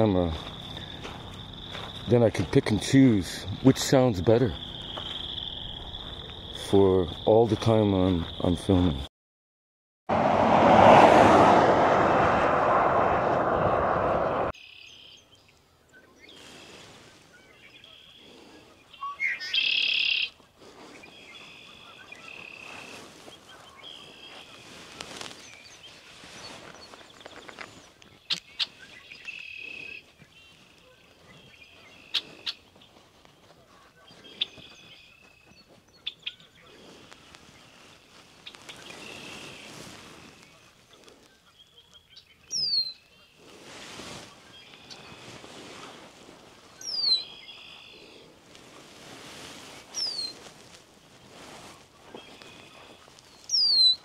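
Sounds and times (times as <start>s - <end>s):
loud roadside rushing noise: 10.1s - 14.5s
songbirds calling and singing: 14.6s - 43.5s, 44.4s - 48.6s, 49.5s - 54.0s.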